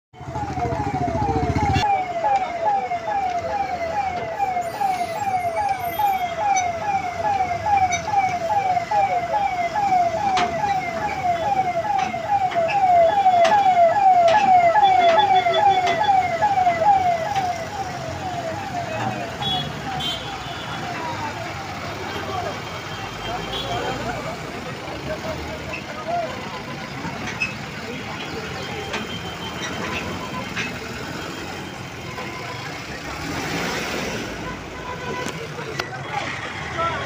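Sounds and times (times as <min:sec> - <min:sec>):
emergency siren wailing: 0:00.2 - 0:33.1.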